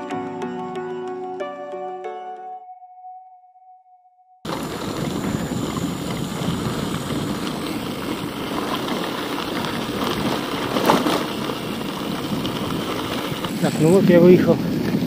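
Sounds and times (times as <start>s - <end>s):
bicycle tyres rolling on road: 4.5s - 15.0s
wind on microphone: 4.5s - 15.0s.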